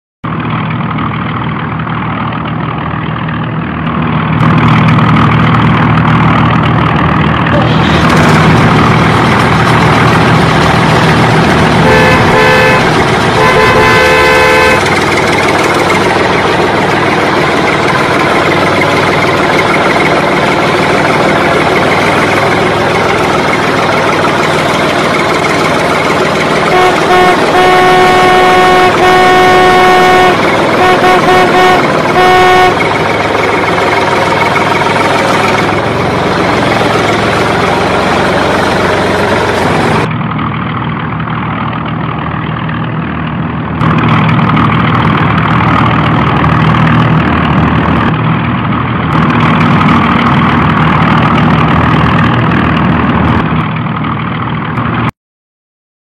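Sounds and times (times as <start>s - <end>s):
engine humming: 0.2s - 55.1s
traffic noise: 0.2s - 55.1s
truck horn: 7.5s - 40.1s
car horn blasts: 11.7s - 16.6s, 26.5s - 33.4s.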